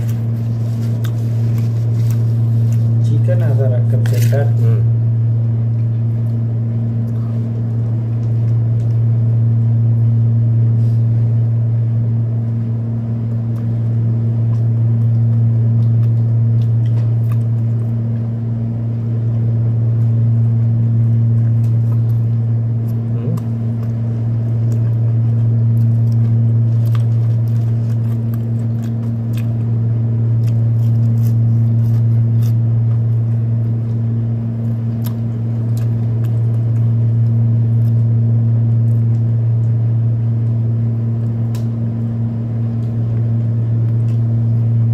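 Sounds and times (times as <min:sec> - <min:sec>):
window air conditioner humming: 0:00.0 - 0:44.9
chewing clicks: 0:13.3 - 0:18.2, 0:21.0 - 0:39.8, 0:41.2 - 0:41.8, 0:42.7 - 0:44.3.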